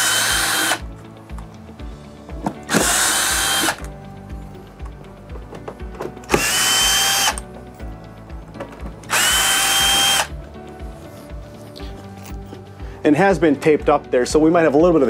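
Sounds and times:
cordless drill motor whine: 0.0s - 0.9s, 2.7s - 3.9s, 6.3s - 7.4s, 9.1s - 10.3s.

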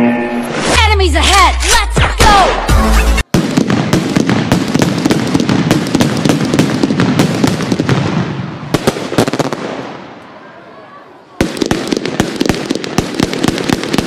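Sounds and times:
intro music: 0.0s - 1.0s, 2.5s - 3.3s
firecrackers popping: 3.3s - 10.2s, 11.4s - 14.0s.

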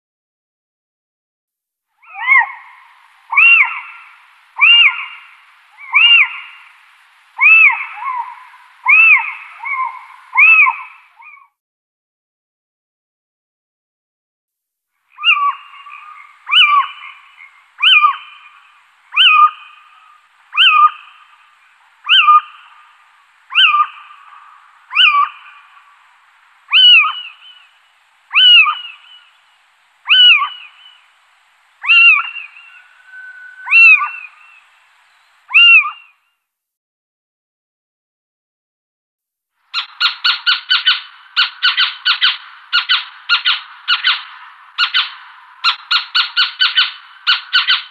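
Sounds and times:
owl yelping calls: 2.0s - 11.5s, 15.1s - 26.0s, 26.7s - 29.3s, 30.0s - 31.1s, 31.8s - 34.7s, 35.5s - 36.2s, 39.7s - 47.9s.

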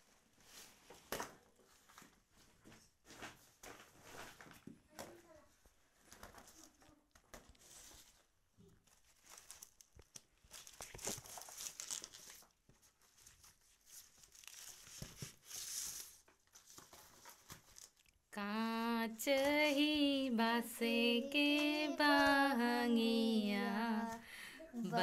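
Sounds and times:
rustling and crinkling of produce: 0.0s - 18.3s
woman singing: 18.4s - 25.0s.

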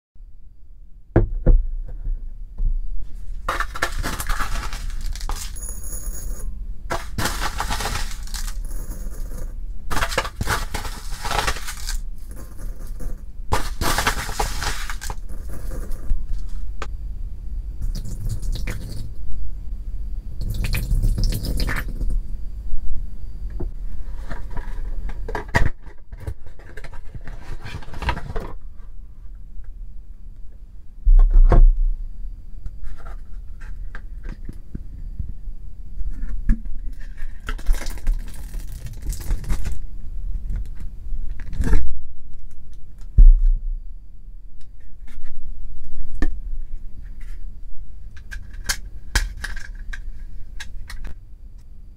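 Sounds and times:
plastic package crackling: 3.5s - 5.6s, 6.9s - 8.7s, 9.9s - 12.5s, 13.5s - 15.3s, 37.4s - 39.8s.

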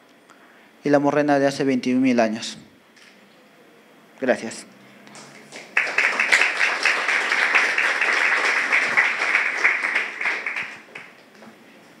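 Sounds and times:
audience applauding: 5.1s - 11.3s.

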